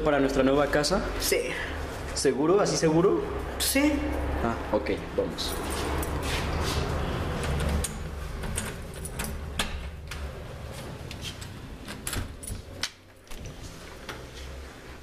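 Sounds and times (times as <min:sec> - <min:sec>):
door opening: 0:05.6 - 0:14.6.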